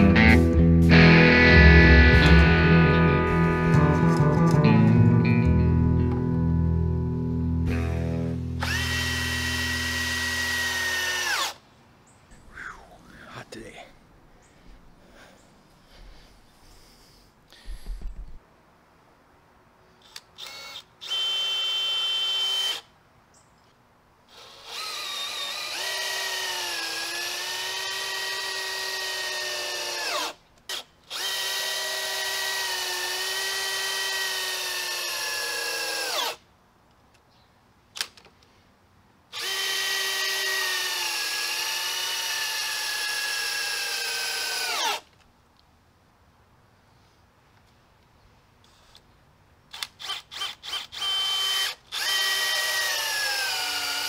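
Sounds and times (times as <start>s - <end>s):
cordless drill motor whine: 7.7s - 11.6s, 20.1s - 22.9s, 24.3s - 36.4s, 39.4s - 45.0s, 49.7s - 54.0s.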